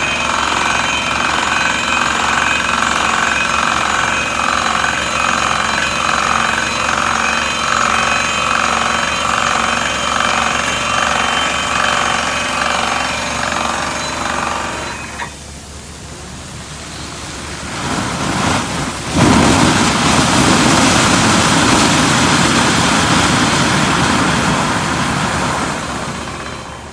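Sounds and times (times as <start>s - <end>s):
drilling rig percussion hammering: 0.0s - 15.4s
compressed air and water blasting: 16.2s - 26.3s.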